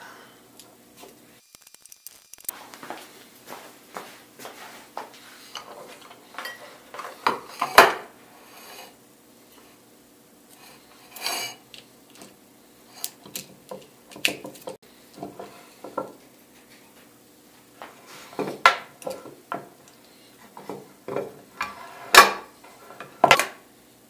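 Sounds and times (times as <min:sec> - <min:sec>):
hard parts knocking on workbench: 0:22.1 - 0:23.6.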